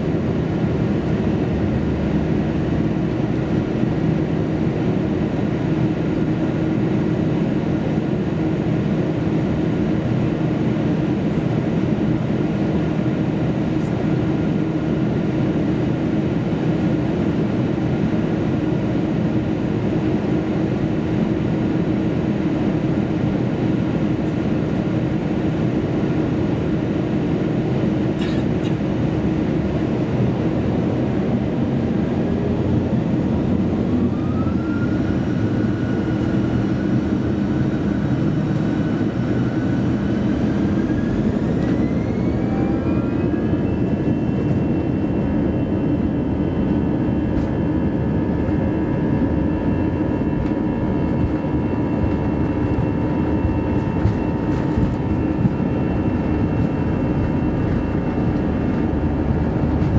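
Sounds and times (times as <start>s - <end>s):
cabin engine and rolling rumble: 0.0s - 59.9s
jet engines spooling up: 19.8s - 59.9s.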